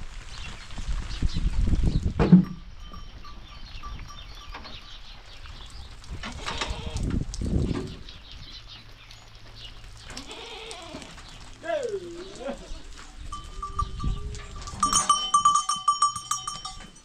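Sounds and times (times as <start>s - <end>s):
goats bleating: 10.1s - 13.8s.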